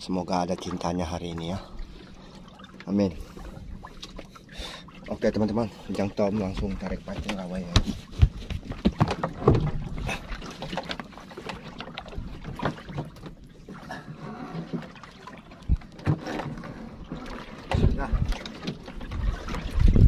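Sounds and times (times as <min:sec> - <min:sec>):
water slapping against hull: 0:00.0 - 0:20.0
knocks on wooden boat planks: 0:06.5 - 0:09.7.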